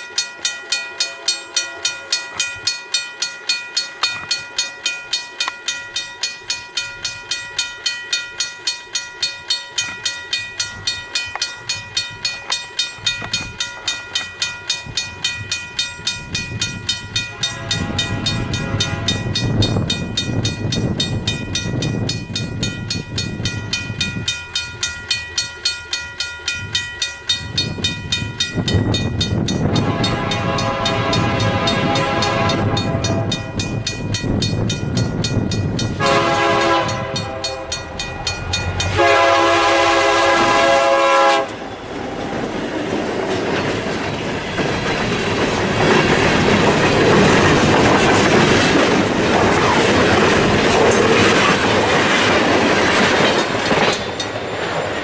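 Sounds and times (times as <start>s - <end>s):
freight train rolling past: 0.0s - 55.0s
locomotive bell ringing: 0.0s - 55.0s
locomotive air horn blasts: 17.3s - 19.4s, 29.7s - 33.4s, 36.0s - 37.8s, 38.9s - 41.6s.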